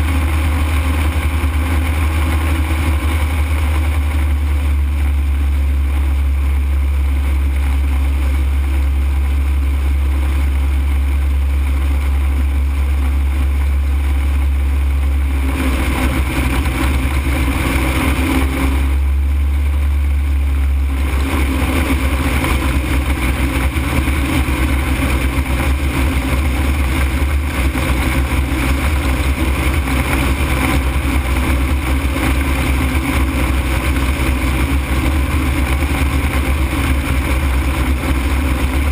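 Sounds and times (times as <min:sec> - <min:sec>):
ultralight aircraft drone: 0:00.0 - 0:38.9.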